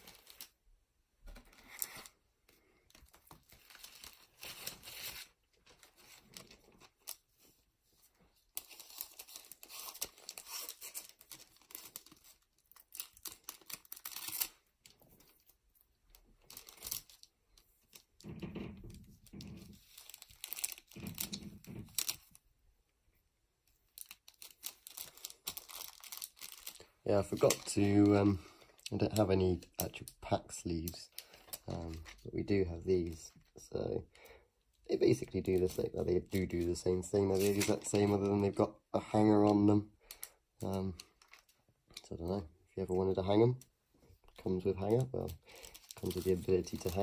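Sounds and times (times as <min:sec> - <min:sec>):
foil pack and plastic crinkling: 0:00.0 - 0:00.6, 0:01.4 - 0:15.5, 0:16.1 - 0:22.4, 0:23.9 - 0:33.5, 0:35.0 - 0:43.6, 0:44.2 - 0:47.0.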